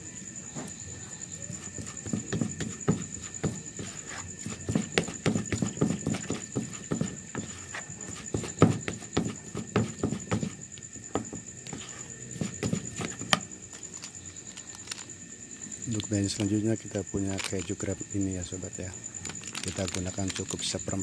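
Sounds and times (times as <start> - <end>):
plastic spoon scraping plastic bowl: 11.2 - 14.1.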